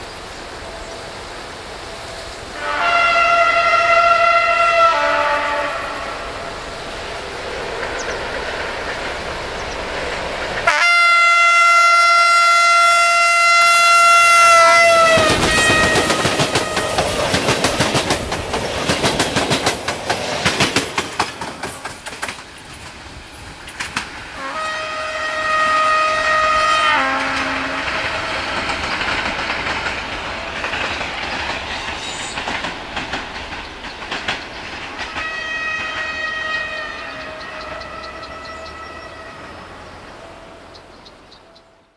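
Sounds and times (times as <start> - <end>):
locomotive air horn blasts: 2.5 - 6.5, 10.6 - 17.2, 24.4 - 28.3, 35.2 - 39.9
train coaches clacking over rail joints: 14.4 - 24.2, 27.0 - 39.0.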